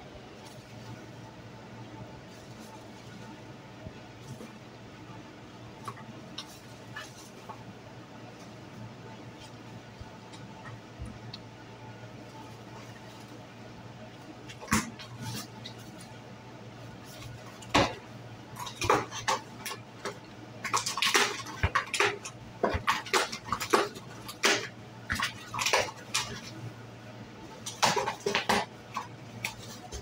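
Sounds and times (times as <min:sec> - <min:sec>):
plastic sheeting crinkling: 0:02.2 - 0:03.5.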